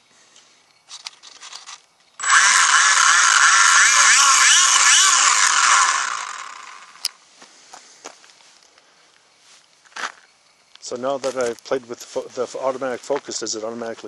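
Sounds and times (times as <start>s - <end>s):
rc plane motor whine: 2.2s - 7.2s.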